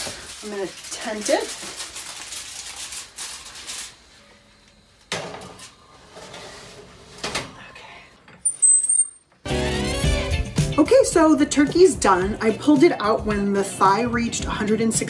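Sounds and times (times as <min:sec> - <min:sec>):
aluminium foil crinkling: 0:00.0 - 0:04.2.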